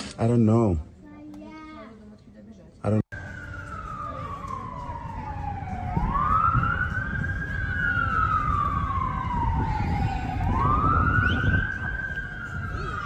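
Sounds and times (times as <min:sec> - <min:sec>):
siren wailing: 0:03.1 - 0:13.0.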